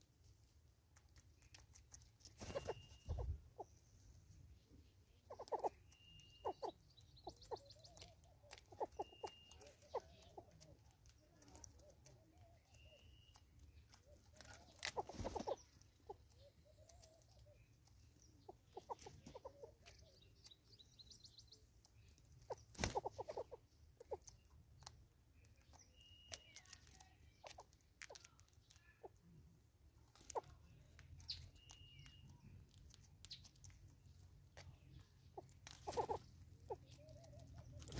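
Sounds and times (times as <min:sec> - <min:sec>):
high whistled bird notes: 0:02.4 - 0:03.4, 0:05.6 - 0:06.8, 0:08.8 - 0:09.7, 0:31.4 - 0:32.3.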